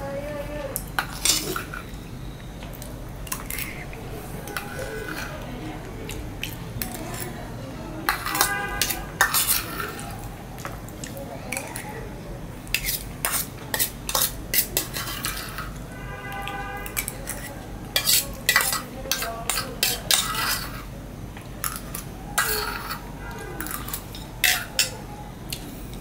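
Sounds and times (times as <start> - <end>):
metal spoon scraping bowl: 1.0 - 2.0, 3.2 - 5.4, 8.1 - 10.3, 12.7 - 15.8, 16.8 - 20.9, 21.6 - 25.0.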